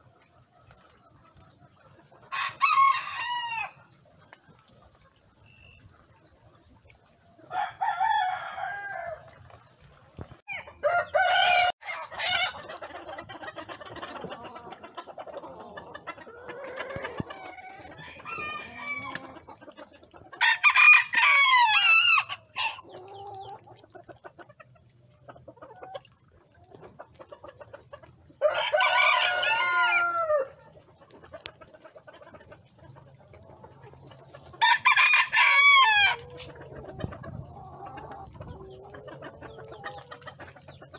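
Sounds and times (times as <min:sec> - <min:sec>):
chickens clucking: 0:00.0 - 0:40.9
roosters crowing: 0:02.3 - 0:03.8, 0:07.5 - 0:09.3, 0:10.5 - 0:12.7, 0:15.6 - 0:19.4, 0:20.4 - 0:22.9, 0:28.4 - 0:30.6, 0:34.6 - 0:36.8.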